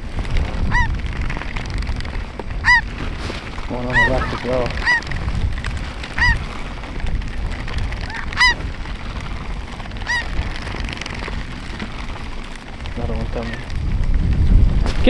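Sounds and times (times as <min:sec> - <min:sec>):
steady low rumble: 0:00.0 - 0:15.0
geese honking: 0:00.7 - 0:01.0, 0:02.6 - 0:02.9, 0:03.7 - 0:05.2, 0:06.0 - 0:06.5, 0:08.0 - 0:09.0, 0:09.9 - 0:10.4.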